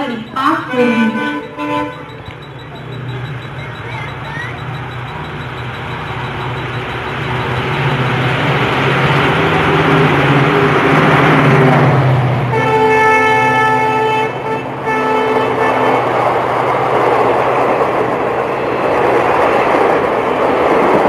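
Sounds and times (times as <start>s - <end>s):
train rumble and hum: 0.0s - 21.0s
locomotive horn blast: 0.4s - 2.4s, 12.5s - 16.1s.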